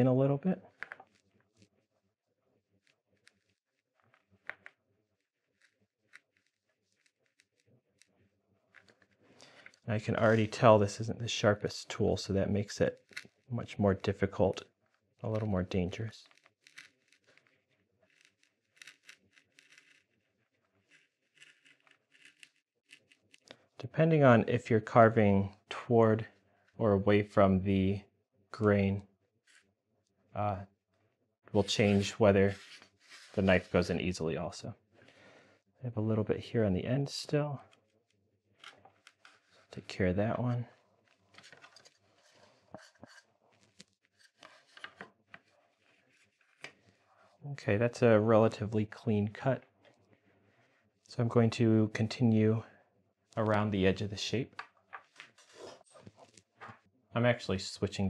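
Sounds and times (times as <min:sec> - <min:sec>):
gouge scraping through wood: 0:18.1 - 0:20.2, 0:20.8 - 0:23.4
gouge scraping wood: 0:20.8 - 0:23.1.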